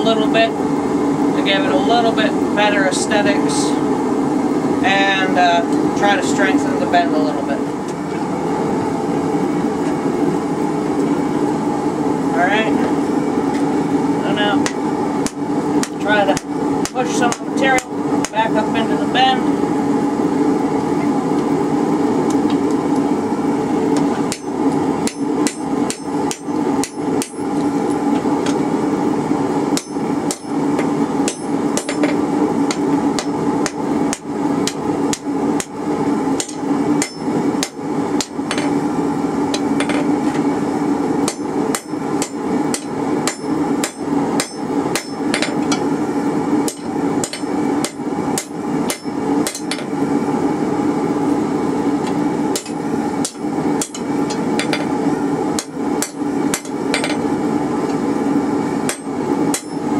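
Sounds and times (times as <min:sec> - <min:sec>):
steady low hum: 0:00.0 - 0:59.9
hammer striking metal on anvil: 0:24.3 - 0:27.4, 0:29.8 - 0:30.6, 0:31.2 - 0:35.7, 0:36.4 - 0:38.8, 0:41.2 - 0:45.8, 0:46.7 - 0:49.9, 0:52.5 - 0:54.9, 0:55.6 - 0:57.2, 0:58.9 - 0:59.8.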